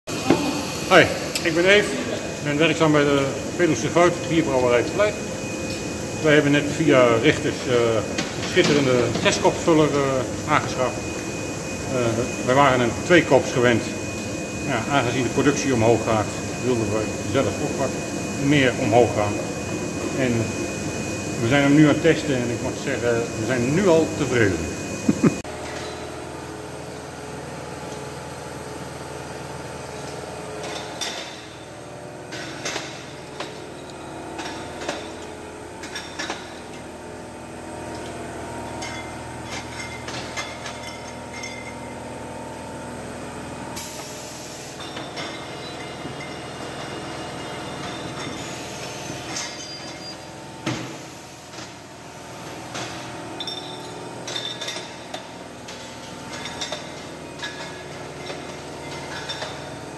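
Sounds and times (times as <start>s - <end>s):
machine hum: 0.1s - 59.9s
glass bottles clinking: 38.8s - 42.0s, 44.8s - 47.0s, 53.4s - 55.2s, 56.3s - 59.8s.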